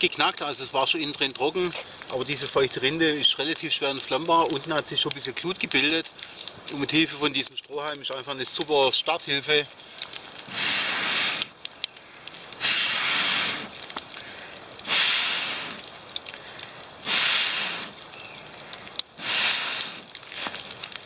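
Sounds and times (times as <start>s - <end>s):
fire crackling: 0.0s - 21.0s
blowing through a straw: 10.5s - 11.6s, 12.6s - 13.8s, 14.8s - 15.8s, 17.0s - 18.0s, 19.2s - 20.6s.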